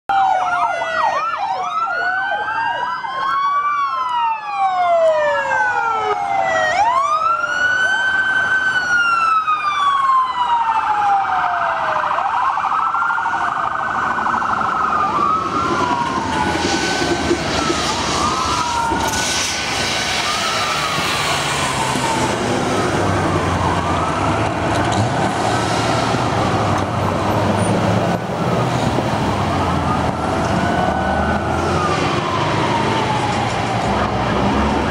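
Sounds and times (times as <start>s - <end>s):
police sirens wailing: 0.1s - 34.9s
passing car engines rumbling: 12.7s - 34.9s.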